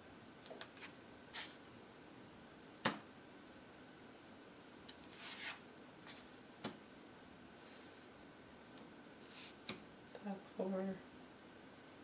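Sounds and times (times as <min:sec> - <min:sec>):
cards sliding on a cloth mat: 0:00.7 - 0:01.8, 0:05.0 - 0:06.4, 0:07.6 - 0:09.8
short scrape: 0:05.1 - 0:06.2.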